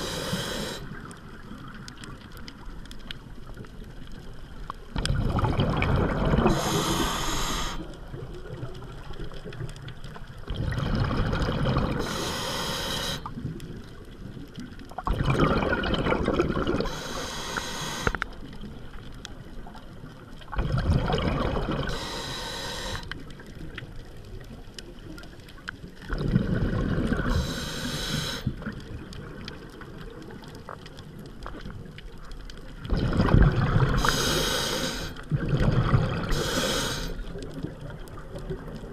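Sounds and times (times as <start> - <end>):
regulator hiss: 0.0 - 1.0, 6.5 - 7.9, 12.0 - 13.3, 16.8 - 18.3, 21.9 - 23.1, 27.3 - 28.5, 34.0 - 35.2, 36.3 - 37.2
exhaled bubbles rushing: 5.0 - 9.7, 10.4 - 12.1, 15.0 - 17.0, 20.5 - 21.9, 26.0 - 27.4, 32.8 - 34.2, 35.2 - 36.4.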